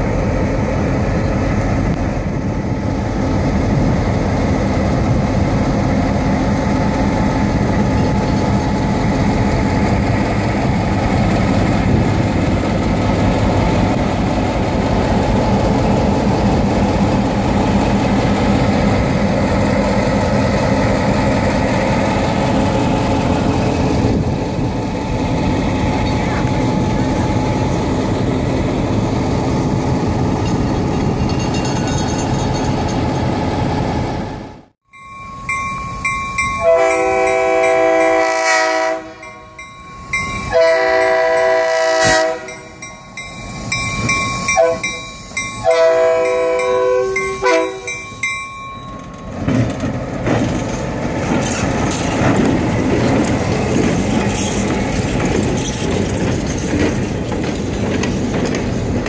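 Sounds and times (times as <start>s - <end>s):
train wheels clicking over rail joints: 30.1s - 33.3s, 46.3s - 59.0s
train air horn blasts: 36.6s - 39.3s, 40.5s - 42.7s, 44.6s - 44.9s, 45.6s - 47.9s.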